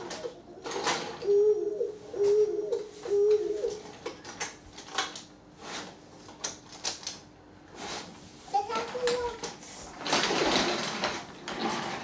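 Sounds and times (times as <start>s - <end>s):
pigeon cooing: 0.0s - 4.0s.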